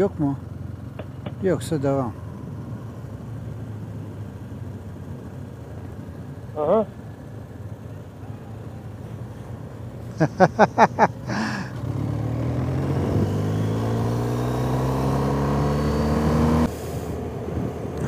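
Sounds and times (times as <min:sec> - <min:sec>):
motorcycle engine accelerating: 0:10.3 - 0:18.0.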